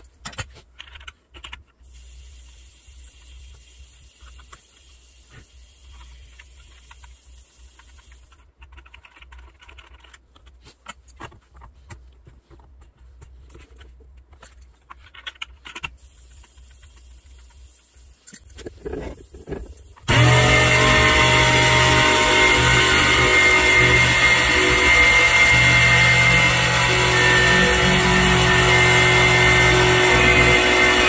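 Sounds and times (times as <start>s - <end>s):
wrench clicks and taps: 0.0s - 1.8s, 6.0s - 12.0s, 12.6s - 17.5s.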